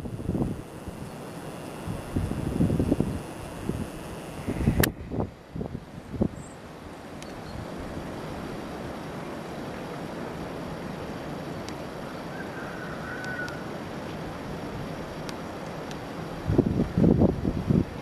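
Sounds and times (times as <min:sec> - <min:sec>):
wind noise on microphone: 0:00.0 - 0:06.5, 0:16.4 - 0:18.0.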